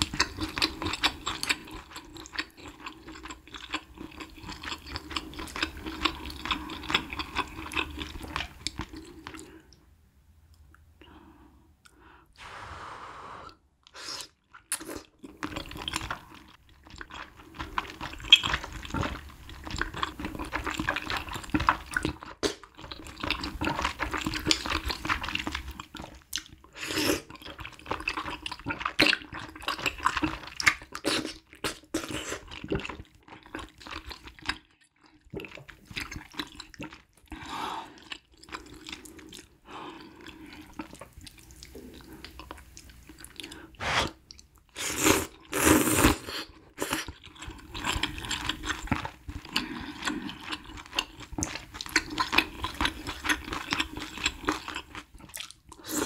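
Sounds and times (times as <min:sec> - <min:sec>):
slurping noodles: 0:43.5 - 0:44.2, 0:44.8 - 0:47.2
smacking and chewing clicks: 0:50.3 - 0:55.8.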